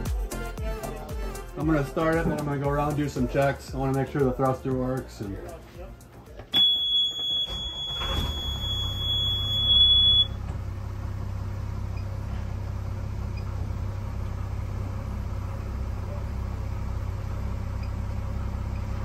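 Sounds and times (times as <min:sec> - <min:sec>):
alarm buzzer beep: 0:06.6 - 0:10.4
diesel engine starting and idling: 0:06.6 - 0:19.0.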